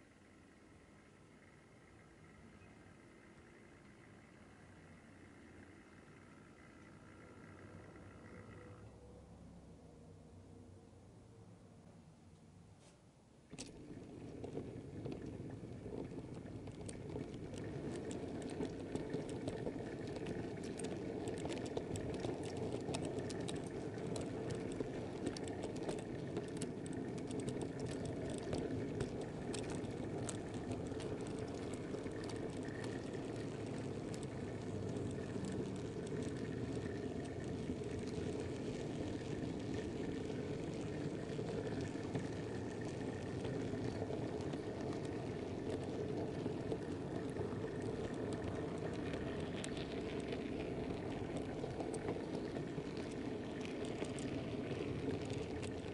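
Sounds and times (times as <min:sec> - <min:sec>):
model train wheels rumbling: 0:00.0 - 0:09.3, 0:13.5 - 0:55.9
clicks over rail joints: 0:13.5 - 0:55.9.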